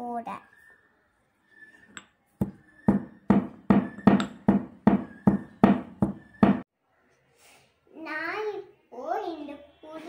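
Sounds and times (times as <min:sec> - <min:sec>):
pestle pounding in stone mortar: 0:02.4 - 0:06.6.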